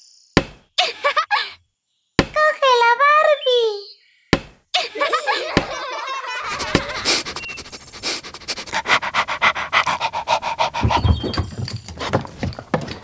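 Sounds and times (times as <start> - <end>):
dog panting: 5.9 - 13.0.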